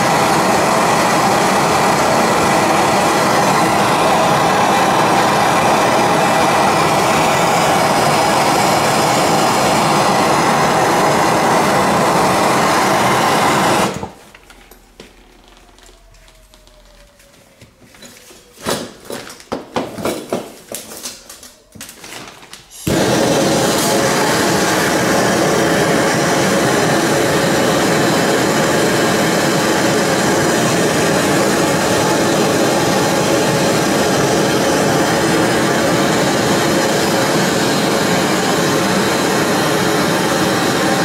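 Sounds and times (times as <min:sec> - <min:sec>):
gas torch flame roaring: 0:00.0 - 0:14.2, 0:22.8 - 0:41.0.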